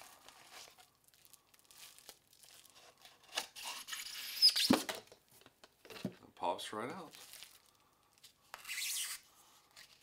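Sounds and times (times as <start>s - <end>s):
packaging rustling: 7.0s - 8.7s.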